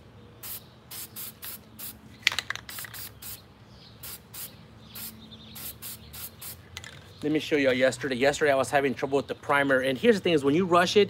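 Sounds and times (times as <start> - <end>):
spray can hissing bursts: 0.4 - 3.4, 4.0 - 6.6.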